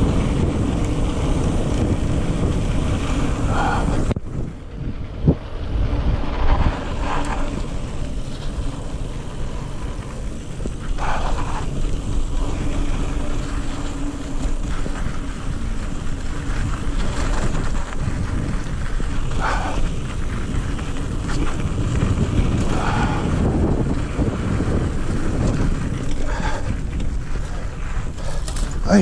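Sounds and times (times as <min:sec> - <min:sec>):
bike tyres rolling on dirt: 0:00.0 - 0:29.0
wind buffeting microphone: 0:00.0 - 0:29.0.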